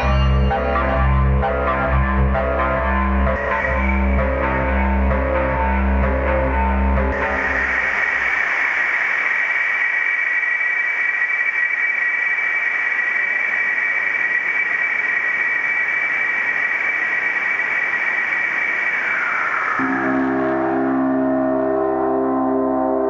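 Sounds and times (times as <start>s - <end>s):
synthesizer noise hiss with whistling tone: 0.0s - 23.0s.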